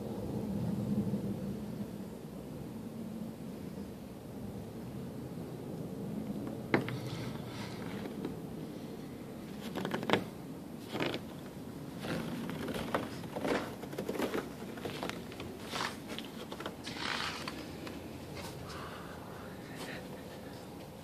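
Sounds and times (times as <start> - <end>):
footsteps on snow: 10.8 - 17.7.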